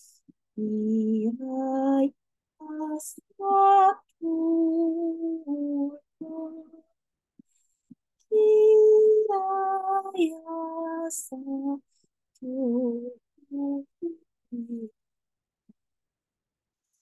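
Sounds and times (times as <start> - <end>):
woman singing wordless tones: 0.6 - 6.8, 8.3 - 11.8, 12.4 - 15.0.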